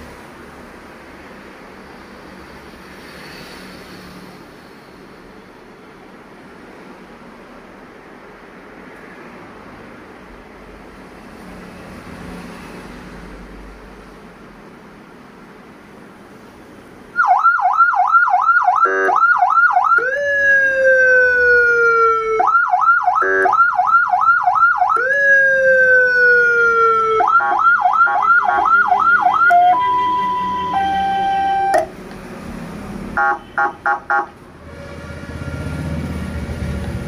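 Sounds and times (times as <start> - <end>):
electronic siren tones: 17.2 - 31.9.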